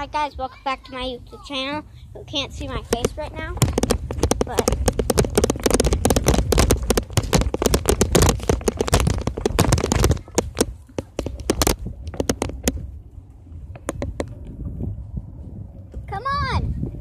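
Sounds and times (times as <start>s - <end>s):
low rumble: 11.8s - 17.0s.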